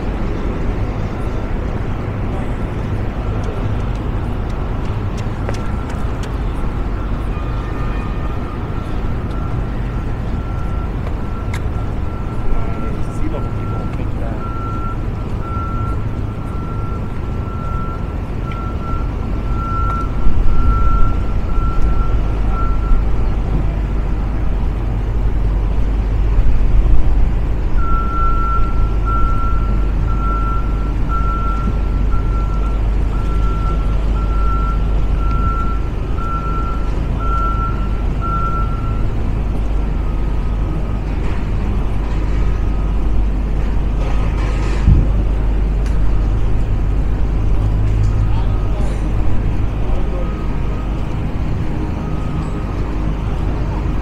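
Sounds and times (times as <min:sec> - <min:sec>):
electronic warning beeps: 0:05.5 - 0:23.4, 0:27.8 - 0:39.2.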